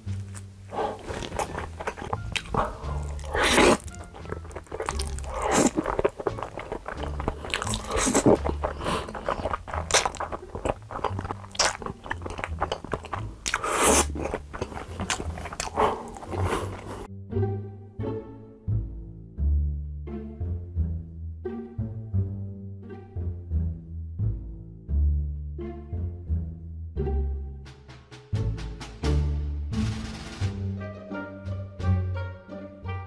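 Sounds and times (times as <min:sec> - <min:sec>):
chewing grilled meat: 0:00.0 - 0:17.1
quiet background music: 0:00.0 - 0:33.0
slurping noodles: 0:00.7 - 0:17.1.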